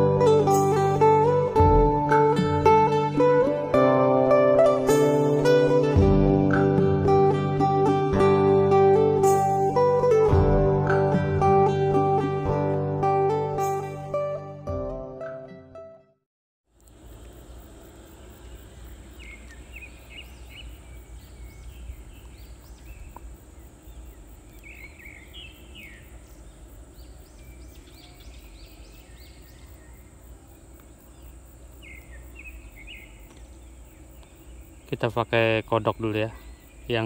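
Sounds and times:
insect drone: 16.7 - 37.0
birds chirping: 16.8 - 37.0.

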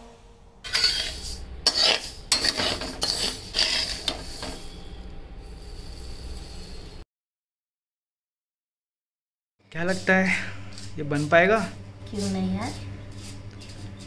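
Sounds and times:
metal spatula scraping wok: 0.6 - 7.0.

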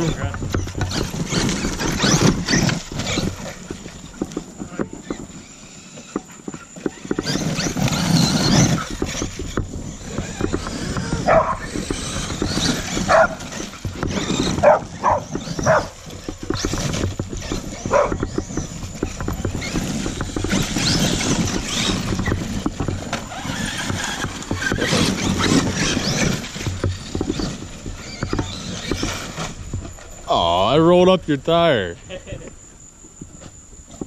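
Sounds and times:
toy truck motor whirring: 0.0 - 30.6
gravel crunching: 0.0 - 34.0
dog yelping: 11.1 - 11.8, 12.8 - 13.6, 14.3 - 16.0, 17.7 - 18.4.

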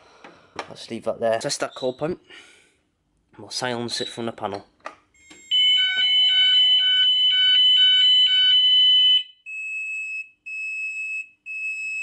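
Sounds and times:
two-tone fire alarm: 5.2 - 12.0.

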